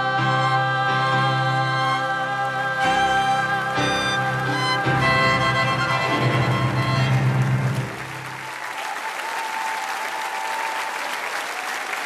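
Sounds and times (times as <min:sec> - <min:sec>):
live band music: 0:02.8 - 0:08.3
studio audience applauding: 0:04.4 - 0:12.0.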